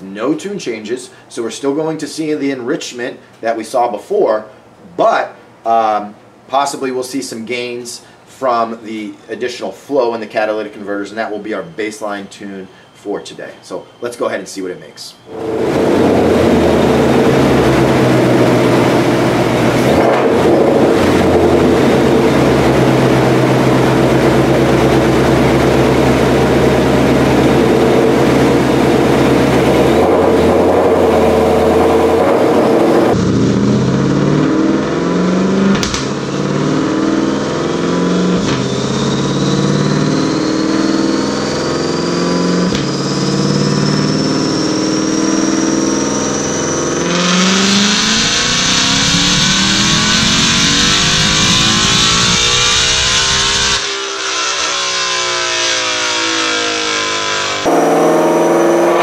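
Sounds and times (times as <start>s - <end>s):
high whine climbing in pitch: 8.5s - 59.0s
car engine running on dyno: 15.3s - 59.0s.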